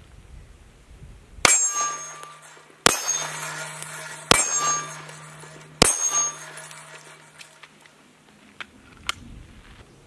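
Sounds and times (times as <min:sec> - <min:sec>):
steel target clanging: 0:01.4 - 0:07.8
handgun shots: 0:01.5 - 0:07.6.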